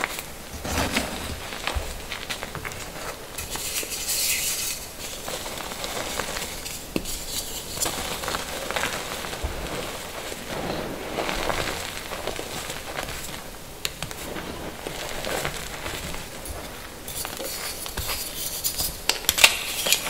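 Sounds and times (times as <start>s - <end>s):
chalk crunching in hands: 16.6s - 20.0s.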